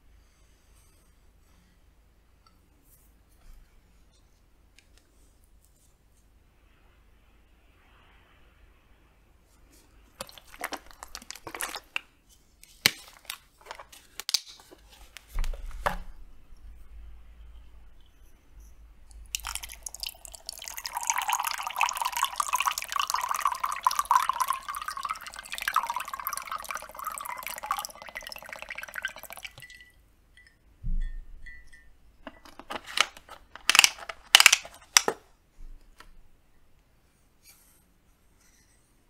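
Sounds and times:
liquid pouring over ice: 10.2s - 12.0s, 19.3s - 29.9s.

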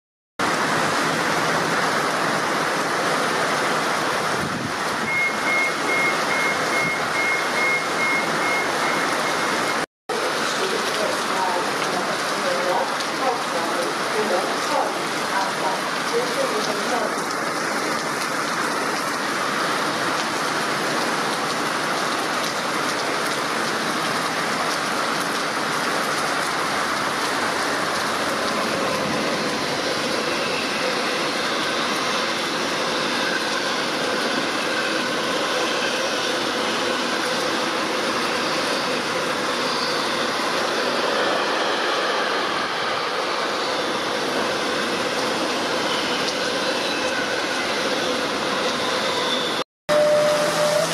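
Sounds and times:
heavy rain pouring: 0.4s - 50.9s
freight train rolling past: 25.6s - 50.9s.

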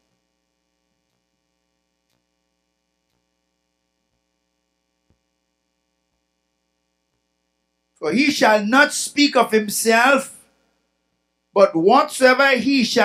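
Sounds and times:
faint electrical hum: 0.0s - 13.0s
faint ticks: 0.1s - 5.4s, 7.0s - 7.4s.

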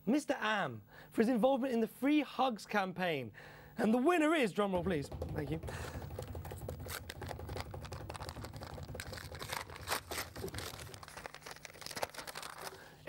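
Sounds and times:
low drum roll: 4.7s - 6.8s
paper envelope tearing: 6.6s - 12.9s.

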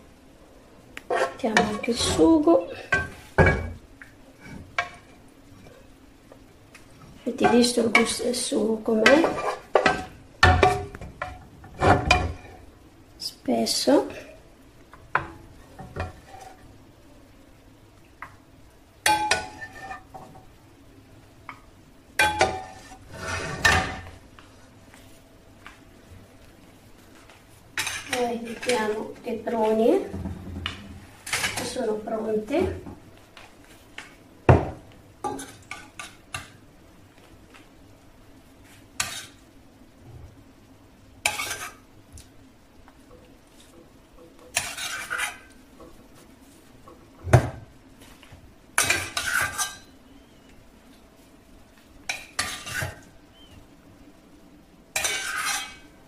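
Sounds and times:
spoon scraping saucepan: 1.1s - 2.1s, 9.0s - 10.0s, 44.5s - 45.5s, 48.8s - 49.9s, 55.0s - 55.8s.

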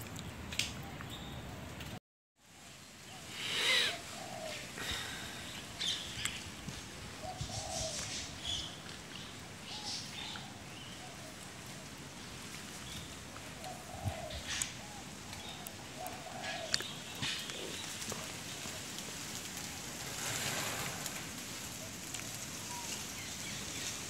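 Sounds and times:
steady background hiss: 0.3s - 24.0s
birds chirping and calling: 3.1s - 11.4s, 12.8s - 19.0s.

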